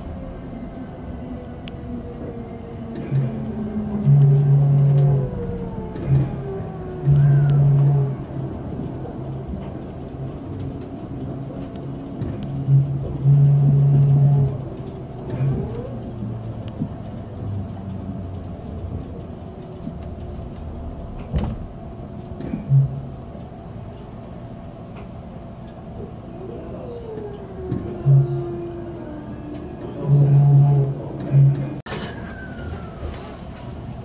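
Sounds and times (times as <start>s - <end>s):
train motor whine: 0.0s - 10.6s, 12.2s - 18.1s, 26.4s - 34.0s
train running hum: 0.0s - 34.0s.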